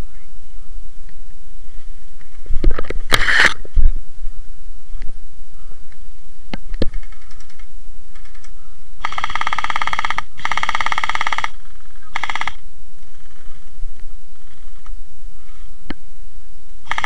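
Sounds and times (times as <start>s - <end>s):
sharp clicks: 6.5s - 12.6s
gel blaster rifle firing bursts: 9.0s - 12.6s.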